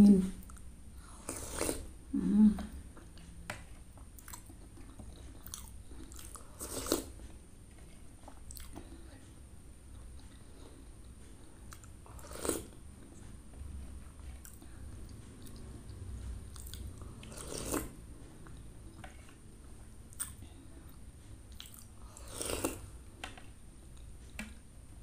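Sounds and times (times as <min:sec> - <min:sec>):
woman chewing: 0:00.4 - 0:03.3, 0:03.9 - 0:09.2, 0:09.9 - 0:19.4, 0:20.1 - 0:23.0.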